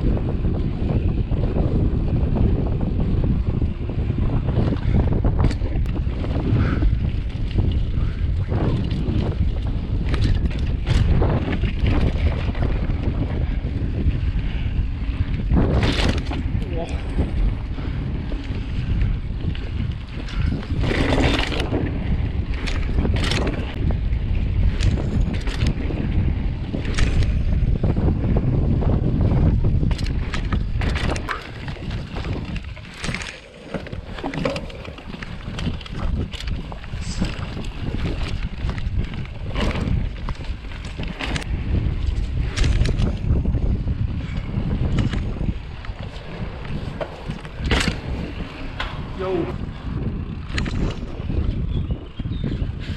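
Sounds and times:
bike clicks and rattles: 0.0 - 52.9
wind buffeting microphone: 0.0 - 52.9.

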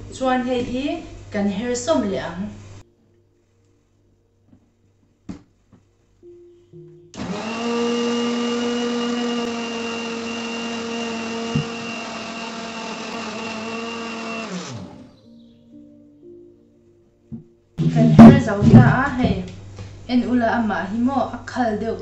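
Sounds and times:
mixer grinder motor whine: 7.1 - 15.2.

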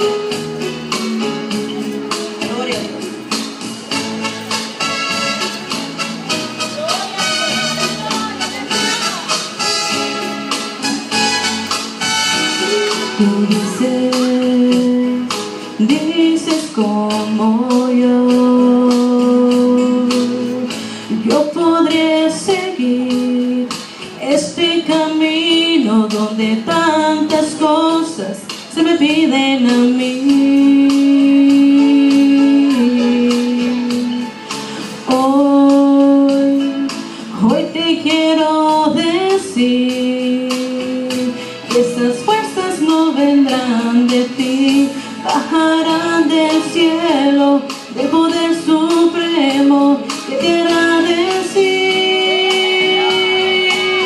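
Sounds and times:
instrumental accompaniment with beat: 0.0 - 54.0
woman singing into a microphone: 12.6 - 54.0.

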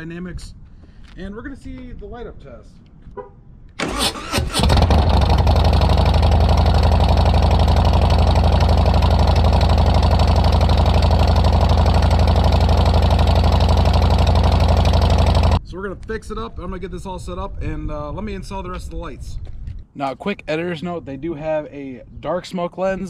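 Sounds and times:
electric starter cranking engine: 3.8 - 7.1
motorcycle engine idling: 4.5 - 15.6.

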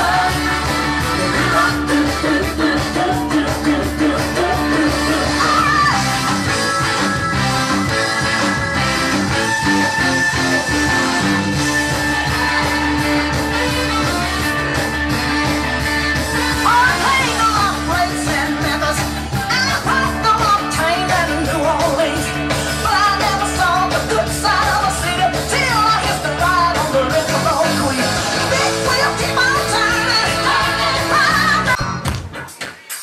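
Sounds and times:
person singing: 0.0 - 7.0, 15.2 - 33.0
loud music with steady beat: 0.0 - 33.0.

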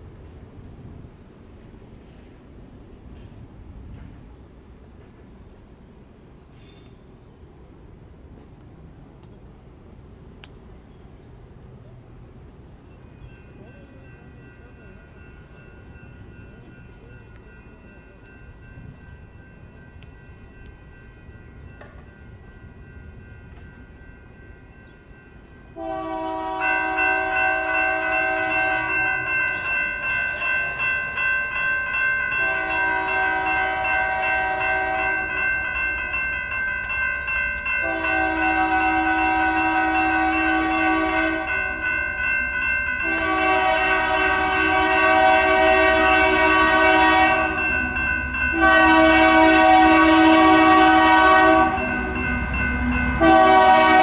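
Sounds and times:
train rumble: 0.0 - 54.0
crossing bells ringing: 12.4 - 54.0
locomotive air horn blasts: 25.8 - 29.2, 32.4 - 35.3, 37.8 - 41.6, 43.0 - 47.7, 48.5 - 52.3, 52.9 - 54.0.

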